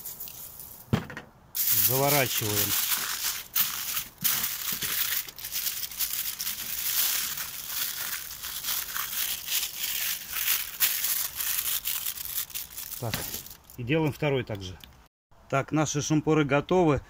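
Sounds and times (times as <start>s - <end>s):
aluminium foil crinkling: 1.6s - 13.8s.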